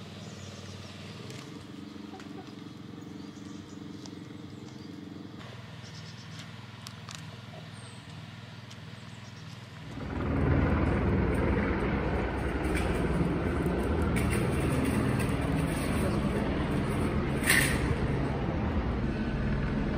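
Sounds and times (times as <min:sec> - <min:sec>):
loud steady low rumble: 0:09.9 - 0:19.9.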